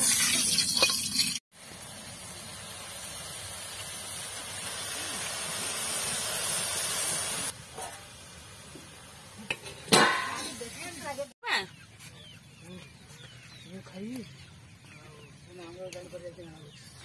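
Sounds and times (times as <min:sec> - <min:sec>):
greens sizzling in hot oil: 0:00.0 - 0:11.3.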